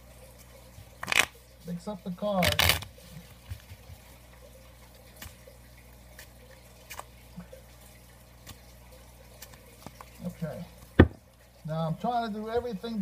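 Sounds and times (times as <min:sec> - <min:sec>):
low steady hum: 0:00.0 - 0:13.0
playing cards clicking: 0:02.4 - 0:02.9.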